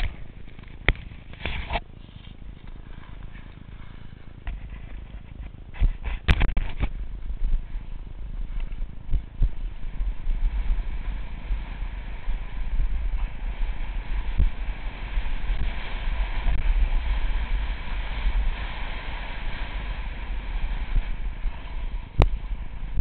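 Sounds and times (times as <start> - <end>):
wind rumbling over microphone: 0.0 - 23.0
snowblades hissing over snow: 7.0 - 23.0.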